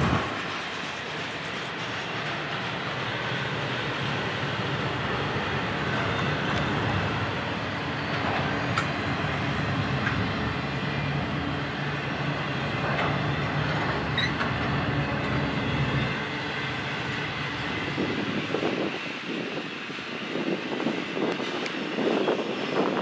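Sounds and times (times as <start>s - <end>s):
diesel locomotive drone: 0.0s - 23.0s
train wheels rumbling on rails: 0.0s - 23.0s.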